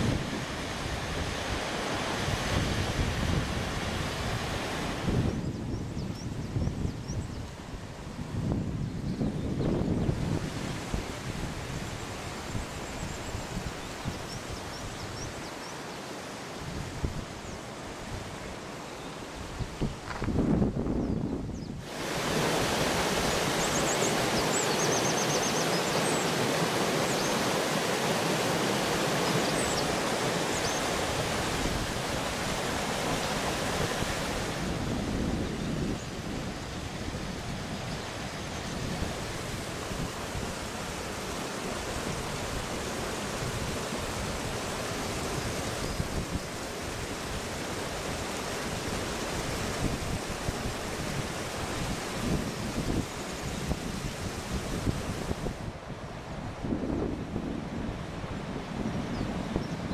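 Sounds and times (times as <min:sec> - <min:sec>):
stream running over rocks: 0:00.0 - 0:05.4, 0:21.8 - 0:55.8.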